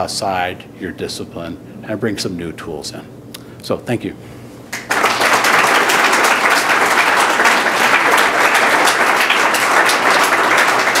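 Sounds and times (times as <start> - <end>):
audience applause: 4.7 - 11.0.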